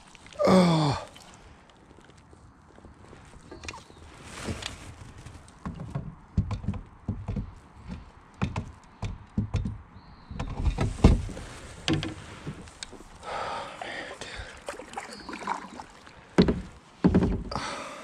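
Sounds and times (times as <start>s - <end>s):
fishing gear knocking on kayak hull: 16.4s - 17.6s.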